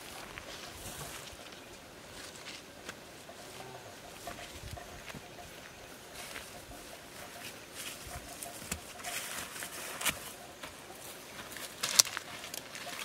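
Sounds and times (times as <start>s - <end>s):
footsteps rustling through grass: 0.0s - 13.0s
stems crackling and snapping: 11.4s - 13.0s.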